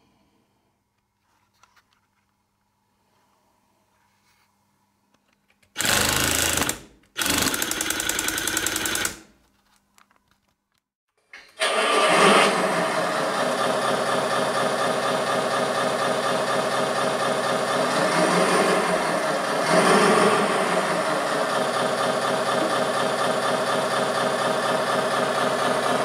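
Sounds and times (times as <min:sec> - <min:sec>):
bursts of mechanical noise: 0:11.6 - 0:26.0
simulated diesel engine running: 0:11.6 - 0:26.0.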